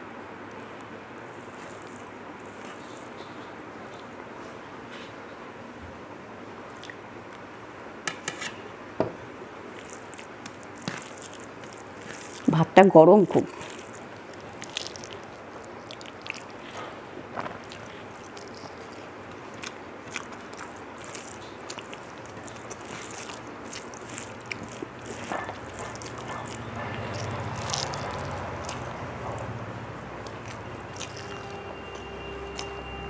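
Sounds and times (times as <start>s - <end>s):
person chewing food: 1.3s - 4.2s, 9.7s - 12.5s, 13.5s - 32.8s.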